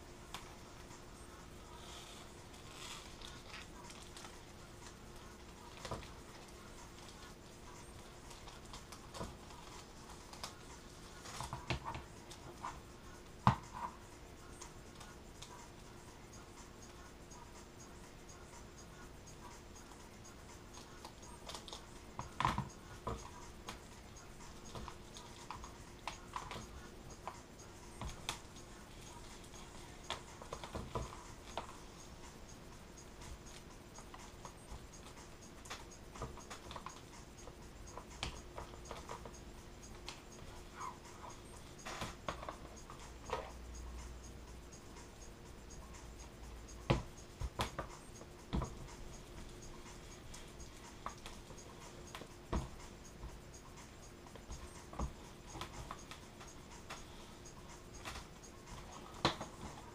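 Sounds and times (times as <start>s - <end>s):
faint steady hum: 0.0s - 59.9s
scratching and rustling film: 0.3s - 12.9s.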